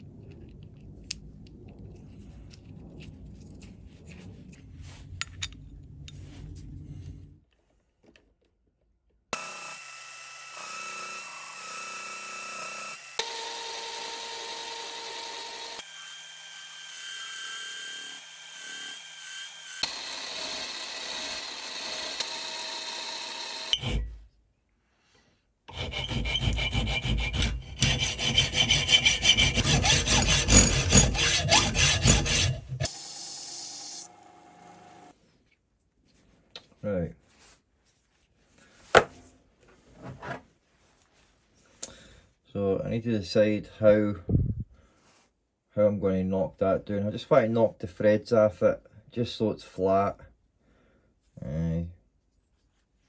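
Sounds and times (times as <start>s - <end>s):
file rasping on metal: 25.7s - 32.9s.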